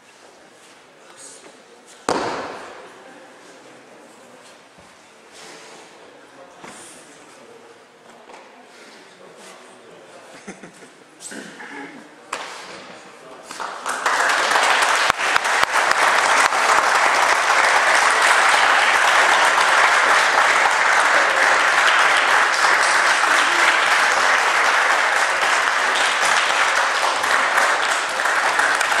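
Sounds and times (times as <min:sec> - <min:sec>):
audience applauding: 0:13.6 - 0:29.0.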